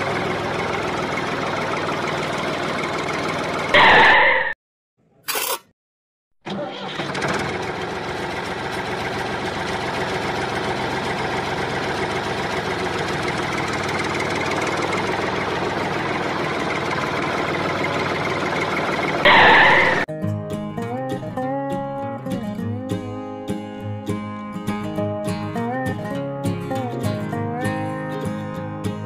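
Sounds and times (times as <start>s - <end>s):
tractor engine running: 0.0s - 4.5s, 6.5s - 20.1s.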